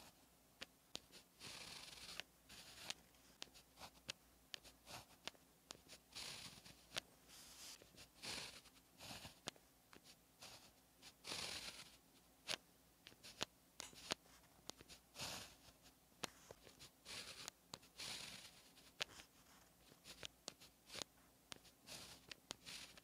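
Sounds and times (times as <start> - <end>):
pen tip ticking on paper: 0.9 - 7.0, 11.2 - 15.6, 16.6 - 19.2, 19.9 - 23.0
pen scratching on paper: 0.9 - 23.0.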